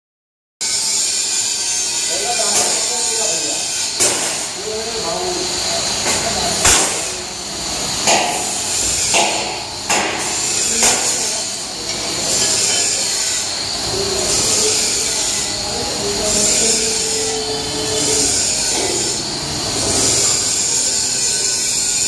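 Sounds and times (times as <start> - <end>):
steady high hum: 2.1 - 21.2
sharp knocks: 4.0 - 4.5, 6.1 - 7.1, 8.0 - 11.3.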